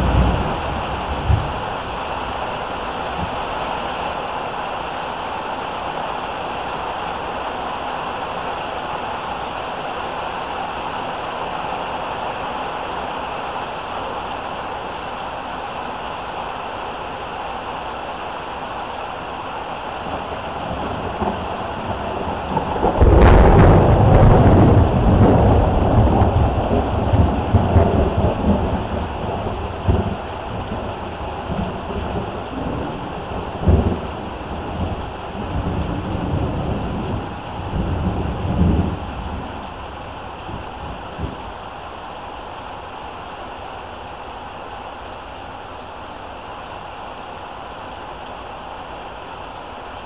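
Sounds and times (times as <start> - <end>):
thunderclap and rumble: 0.0 - 3.7, 20.0 - 41.8
heavy rain: 0.0 - 50.0.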